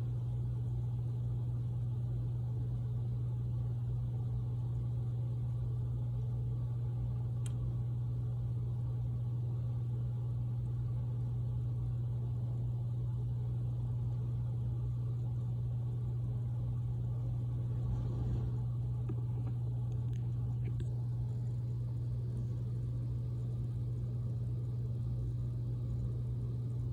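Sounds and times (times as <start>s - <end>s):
steady low hum: 0.0s - 26.9s
faint tick: 7.4s - 7.7s.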